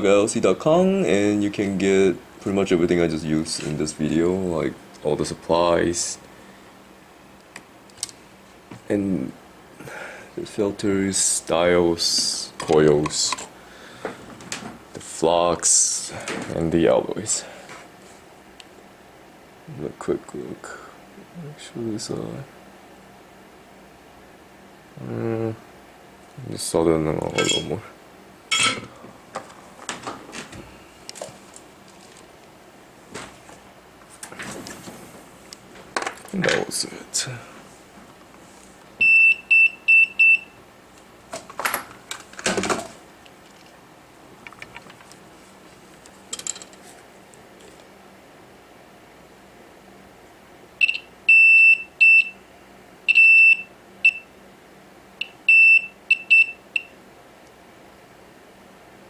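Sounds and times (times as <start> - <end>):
multimeter continuity beeps: 39.0 - 40.6, 50.8 - 52.4, 53.1 - 54.3, 55.2 - 57.0.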